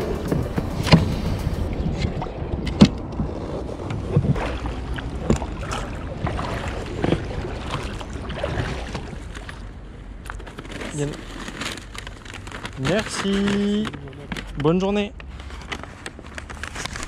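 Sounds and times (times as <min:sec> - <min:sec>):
wind rumble on microphone: 0:00.0 - 0:09.9
water sloshing: 0:00.0 - 0:12.7
knocks and splashes against hull: 0:00.2 - 0:09.8.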